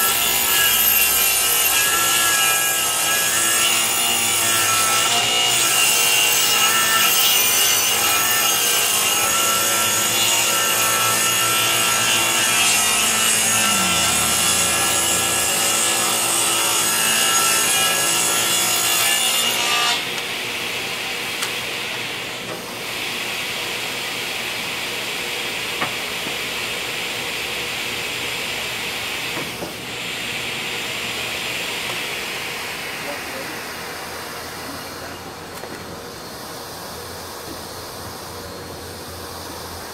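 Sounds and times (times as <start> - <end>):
table saw cutting wood: 0.0 - 36.2
steady machine noise: 12.6 - 16.5.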